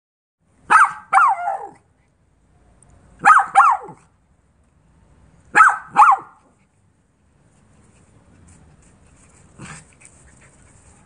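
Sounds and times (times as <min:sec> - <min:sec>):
small dog yapping: 0:00.7 - 0:01.8, 0:03.2 - 0:04.0, 0:05.6 - 0:06.4.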